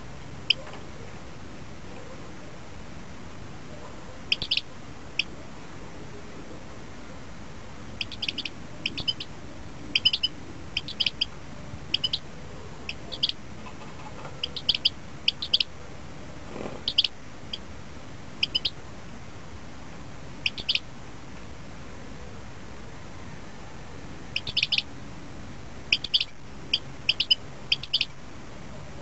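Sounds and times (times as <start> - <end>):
background hiss: 0.0 - 29.0
bird chirping: 4.3 - 5.3, 8.0 - 9.3, 9.9 - 15.7, 16.7 - 17.7, 18.4 - 18.8, 20.4 - 20.9, 24.3 - 24.9, 25.9 - 28.2.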